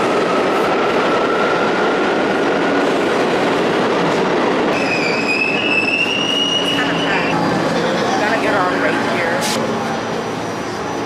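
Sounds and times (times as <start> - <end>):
subway train running: 0.0 - 11.0
wheels squealing: 4.7 - 7.4.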